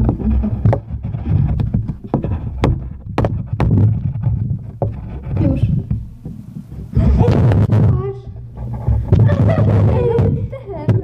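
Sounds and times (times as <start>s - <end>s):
pens tapping on paper and table: 0.0s - 4.1s, 8.9s - 11.0s.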